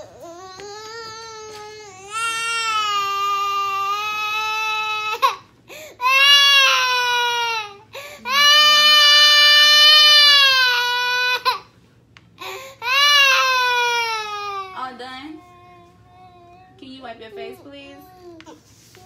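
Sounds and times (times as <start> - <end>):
toddler crying: 0.0 - 5.4, 6.0 - 11.7, 12.4 - 14.8.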